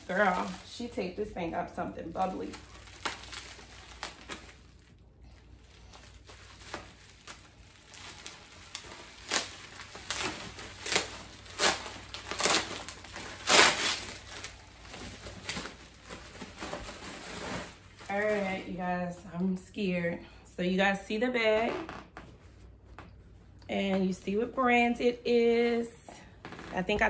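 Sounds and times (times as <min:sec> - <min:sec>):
bubble wrap crinkling: 0:00.0 - 0:19.7.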